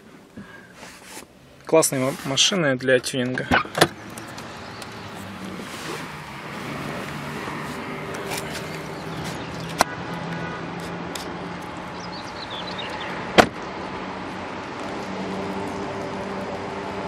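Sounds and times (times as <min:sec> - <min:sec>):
car door slamming: 0:03.4 - 0:04.0, 0:13.3 - 0:13.6.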